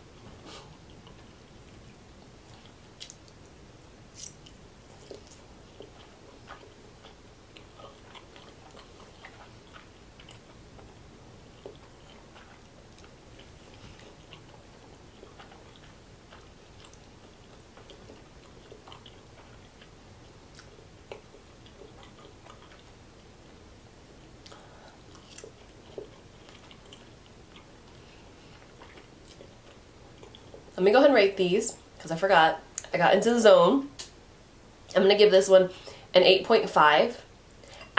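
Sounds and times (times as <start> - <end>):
wet chewing: 0.4 - 23.6, 24.2 - 30.8.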